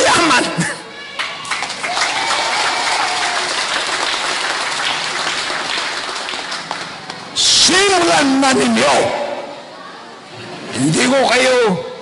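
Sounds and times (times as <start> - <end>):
crowd applause: 1.1 - 7.4.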